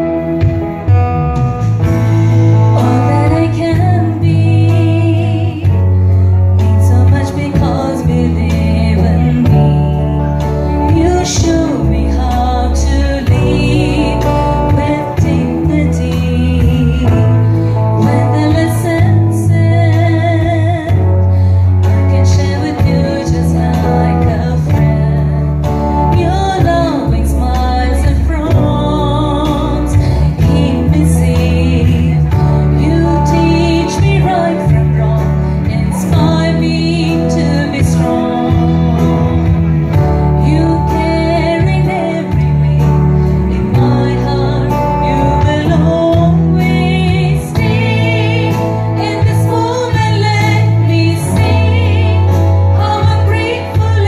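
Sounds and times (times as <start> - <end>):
acoustic guitar: 0.0 - 54.0
women singing in unison: 2.8 - 5.9, 6.6 - 17.4, 26.0 - 39.4, 40.3 - 54.0.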